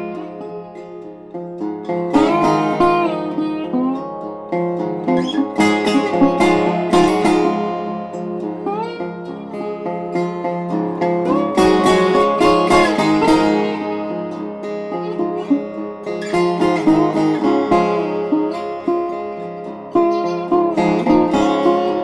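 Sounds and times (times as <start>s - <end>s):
plucked acoustic guitar: 0.0s - 22.0s.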